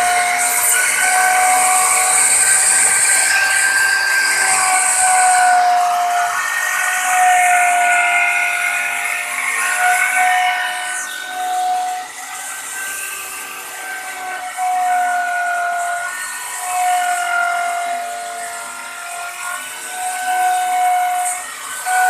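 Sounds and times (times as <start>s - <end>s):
electric router whining: 0.0s - 22.0s
router bit cutting wood: 0.0s - 22.0s.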